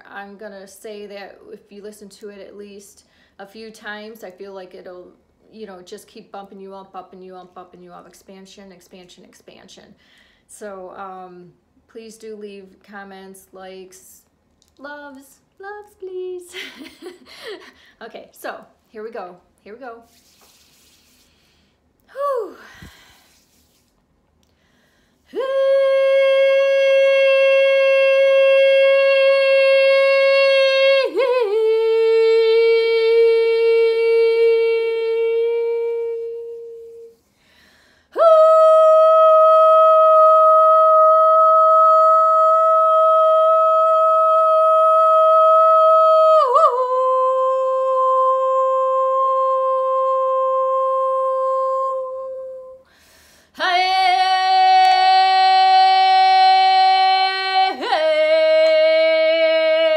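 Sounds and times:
woman breathing: 10.0 - 10.5, 17.2 - 18.0, 20.3 - 23.8, 24.4 - 25.4, 37.2 - 38.2, 52.8 - 53.6
woman singing sustained notes: 25.3 - 37.3, 38.1 - 52.9.

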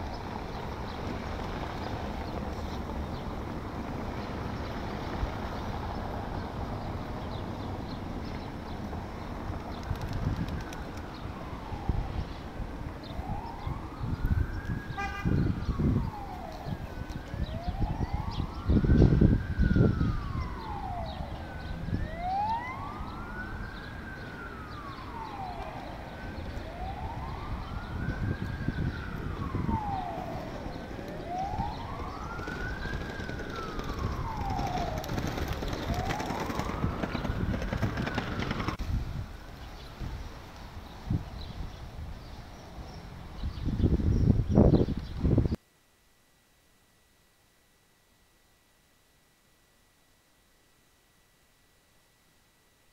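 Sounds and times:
siren wailing: 11.0 - 39.8.

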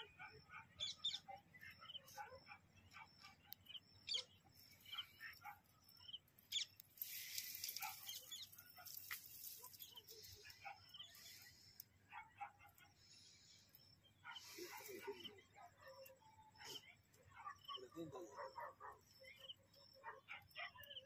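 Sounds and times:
faint bird chirps: 0.0 - 21.0
soft hissing rustle: 6.8 - 11.9.

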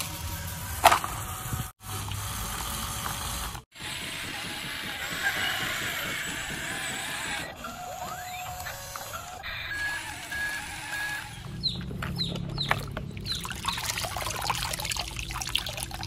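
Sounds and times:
toy gear motors whirring: 0.0 - 16.0
chickens clucking: 3.9 - 13.8.

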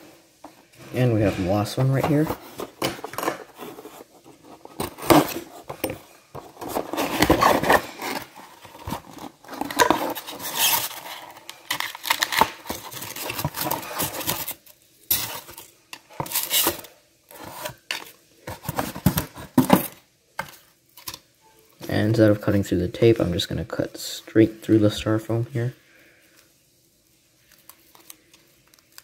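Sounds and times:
cardboard rustling and knocking: 0.8 - 11.0, 18.5 - 20.0.

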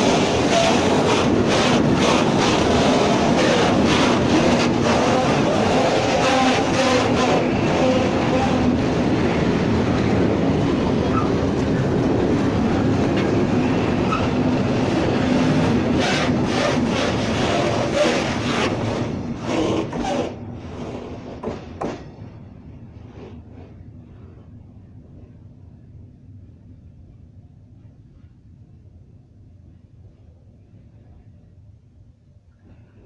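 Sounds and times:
train wheels on rails: 0.0 - 25.8.

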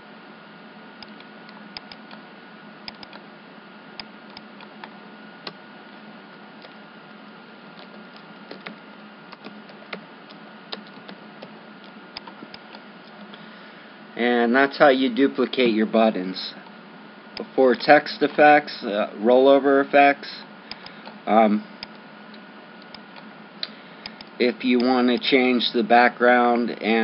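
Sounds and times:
microphone hiss and hum: 0.0 - 27.0
keyboard and mouse clicking: 1.0 - 2.2, 2.8 - 3.2, 7.8 - 11.5, 12.2 - 12.8.

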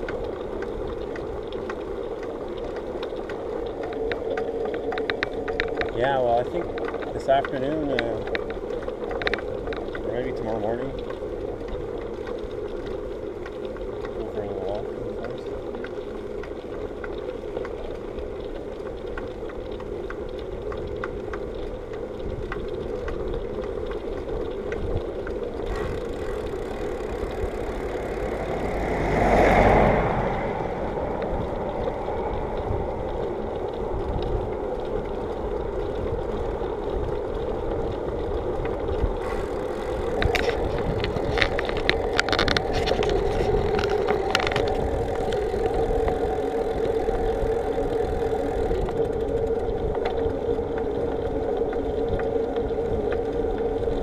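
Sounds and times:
bicycle tyres rumbling on asphalt: 0.0 - 54.0
bike clicking and rattling: 0.0 - 54.0
wind rushing past microphone: 24.8 - 54.0.

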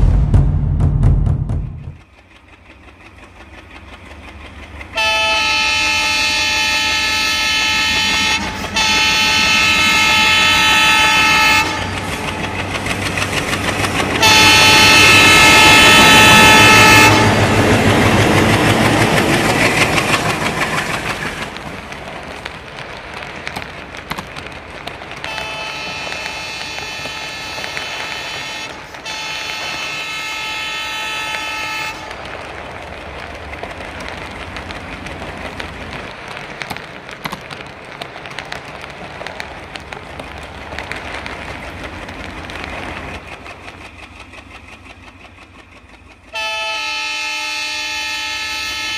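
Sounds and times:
train running noise: 0.0 - 48.9
locomotive horn blasts: 5.0 - 12.2, 14.2 - 17.7, 25.2 - 32.3, 46.3 - 48.9.

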